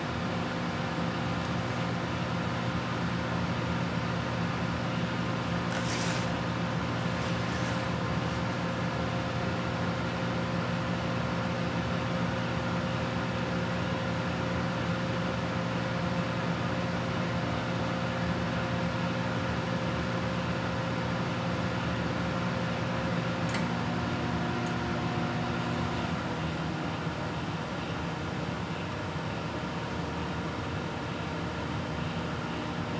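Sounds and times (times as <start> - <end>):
microwave oven humming: 0.0 - 32.9.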